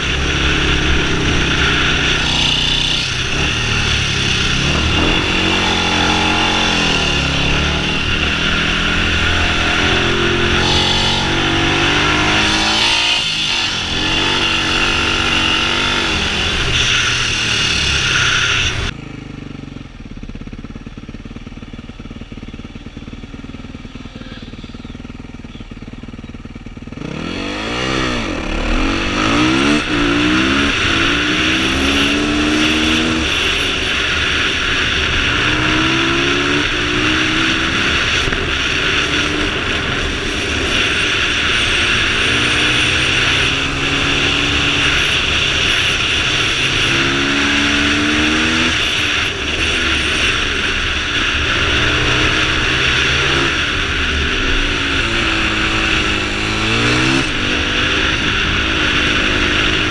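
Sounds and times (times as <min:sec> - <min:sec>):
wind rushing over microphone: 0:00.0 - 0:18.9
motorcycle engine accelerating: 0:00.0 - 0:59.9.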